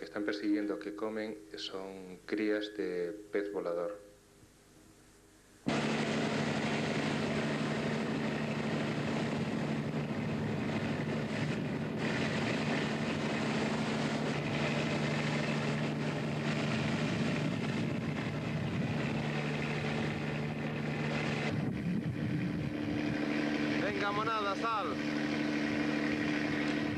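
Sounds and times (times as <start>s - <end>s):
boat engine hum: 5.7s - 26.9s
rushing noise: 5.7s - 26.9s.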